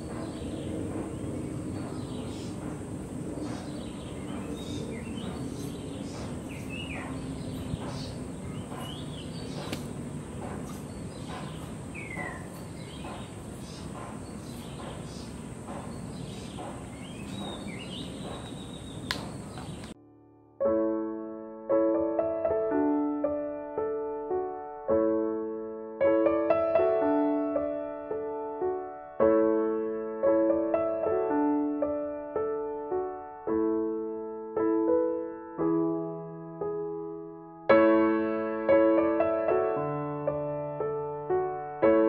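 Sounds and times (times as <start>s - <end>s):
bird chirps: 0.0s - 20.0s.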